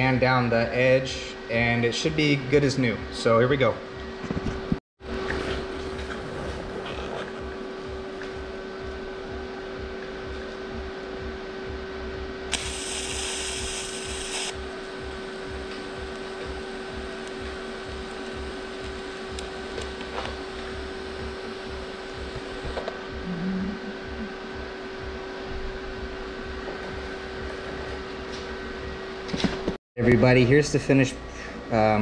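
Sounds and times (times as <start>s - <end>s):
welder humming and buzzing: 5.2s - 29.5s
welder hiss: 12.5s - 14.6s.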